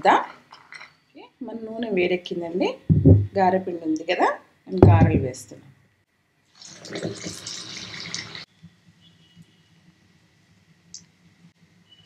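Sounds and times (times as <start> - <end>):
hot oil sizzling: 6.5 - 8.5.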